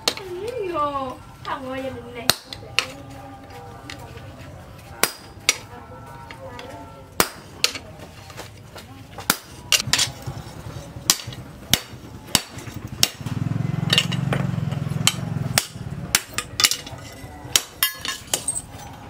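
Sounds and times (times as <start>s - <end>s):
hammer striking steel on anvil: 5.0s - 5.6s, 13.9s - 18.6s.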